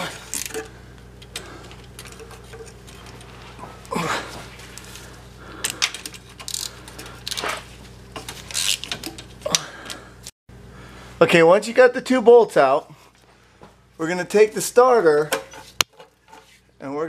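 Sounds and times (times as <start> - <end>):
hand ratchet ratcheting: 0.0 - 3.2, 5.6 - 7.5, 8.2 - 10.0
steady low hum: 0.0 - 17.0.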